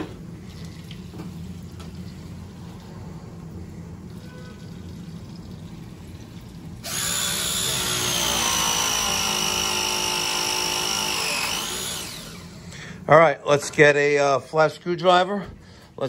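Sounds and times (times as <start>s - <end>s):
press tool motor whining: 6.8s - 12.6s.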